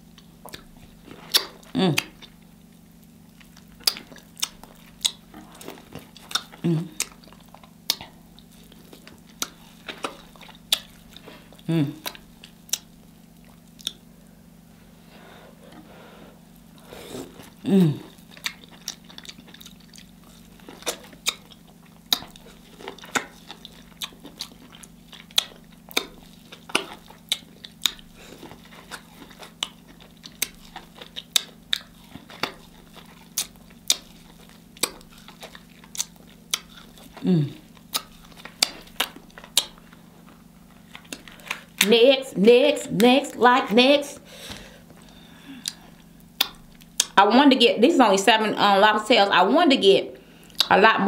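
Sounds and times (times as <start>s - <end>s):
chewing corn on the cob: 0.0s - 14.2s, 16.4s - 41.9s, 44.8s - 47.2s, 50.4s - 50.8s
wet mouth clicks and smacks: 0.4s - 2.4s, 6.2s - 11.1s, 12.0s - 12.9s, 13.5s - 14.1s, 20.8s - 37.2s, 37.8s - 41.9s, 45.6s - 47.2s, 50.5s - 50.7s
person humming in enjoyment: 1.8s - 2.1s, 6.6s - 7.0s, 11.7s - 12.1s, 17.6s - 18.2s, 37.2s - 37.6s.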